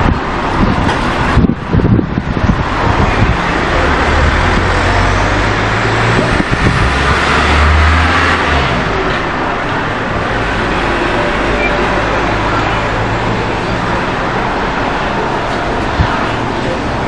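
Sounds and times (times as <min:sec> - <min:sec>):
road traffic noise: 0:00.0 - 0:17.0.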